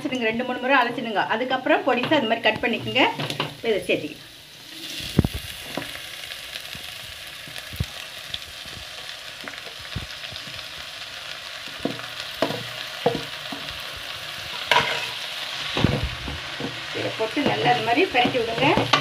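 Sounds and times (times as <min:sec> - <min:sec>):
greens sizzling in hot oil: 0:00.0 - 0:19.0
wooden spatula scraping a pan: 0:11.8 - 0:19.0.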